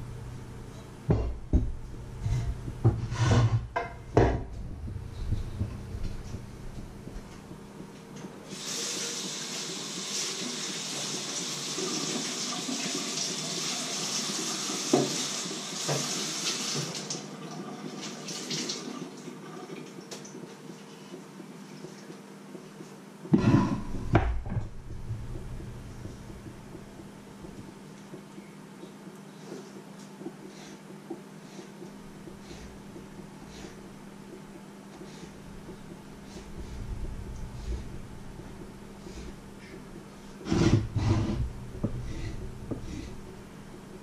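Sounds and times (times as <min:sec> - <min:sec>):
cutting board knocking: 0:01.1 - 0:06.5, 0:23.3 - 0:27.7.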